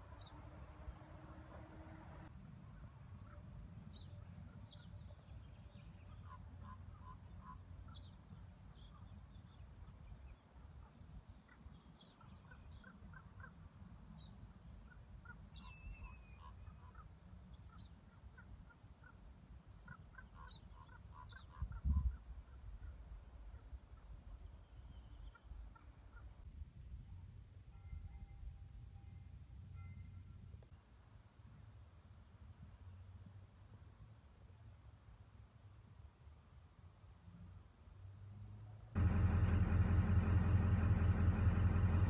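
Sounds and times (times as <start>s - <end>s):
low rumble: 39.0s - 42.0s.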